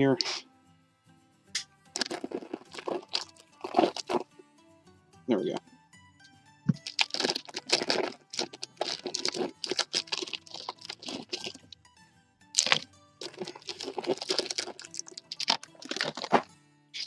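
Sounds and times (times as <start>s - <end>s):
quiet background music: 0.0s - 17.0s
candy bag crinkling: 2.0s - 4.2s, 6.8s - 11.7s, 12.6s - 16.4s.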